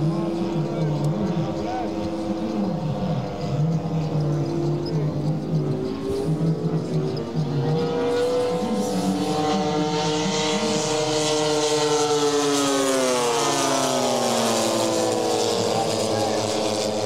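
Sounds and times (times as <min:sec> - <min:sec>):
model plane engines and propellers: 0:00.0 - 0:17.0.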